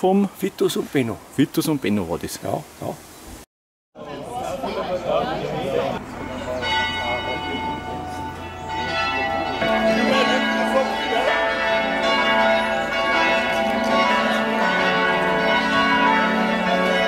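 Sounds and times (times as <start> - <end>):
church bells pealing: 5.2 - 17.0.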